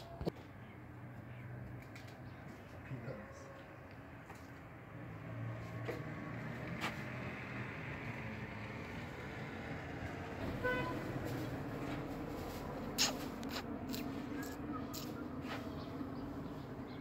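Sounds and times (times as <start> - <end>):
street traffic: 0.0 - 17.0
vehicle engine rumble: 0.0 - 17.0
car horn toot: 10.5 - 11.1.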